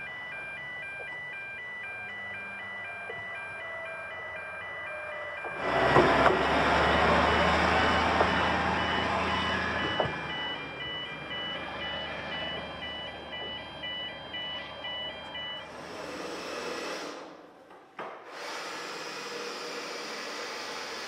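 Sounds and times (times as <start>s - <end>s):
level crossing alarm beeping: 0.0s - 15.9s
workshop hum: 0.0s - 21.0s
diesel locomotive engine rumble: 1.8s - 15.7s.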